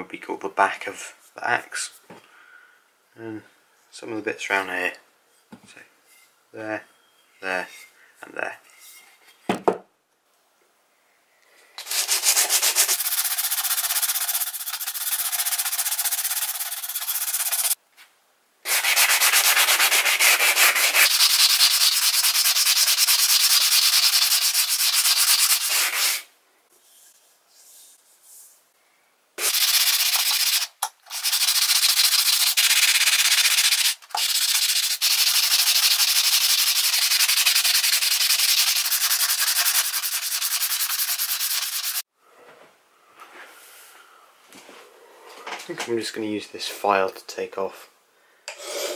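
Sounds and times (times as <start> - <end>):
sanding block rasping on steel: 11.8 - 17.8, 18.7 - 26.3, 29.4 - 42.0.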